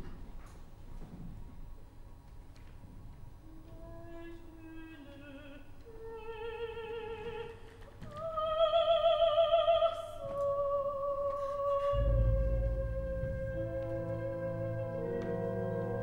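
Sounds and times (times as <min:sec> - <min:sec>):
woman singing operatically: 0:03.5 - 0:16.0.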